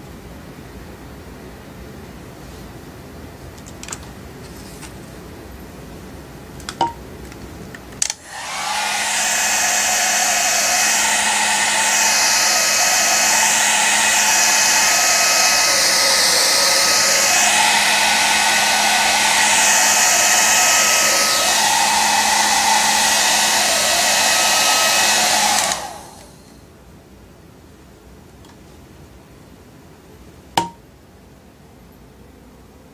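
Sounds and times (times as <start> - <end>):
hair dryer switch clicks: 8.0 - 10.0, 24.2 - 26.3
hair dryer blowing air: 8.1 - 26.6.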